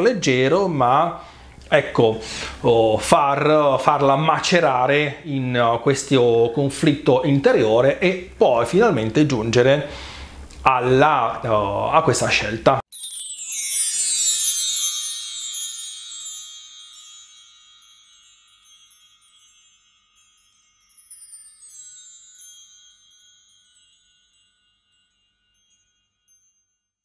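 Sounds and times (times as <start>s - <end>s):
high bell-like tinkles: 12.9s - 27.0s.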